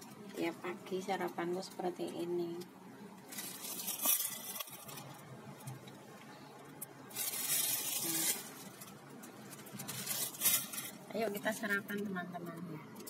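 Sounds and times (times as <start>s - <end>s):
plastic bag crinkling: 3.2s - 5.4s, 7.0s - 11.7s.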